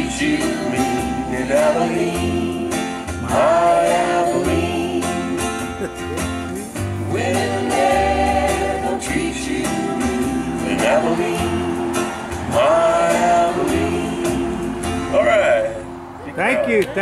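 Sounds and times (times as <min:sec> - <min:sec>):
man singing into microphone: 0:00.0 - 0:02.0
backing track with guitar: 0:00.0 - 0:17.0.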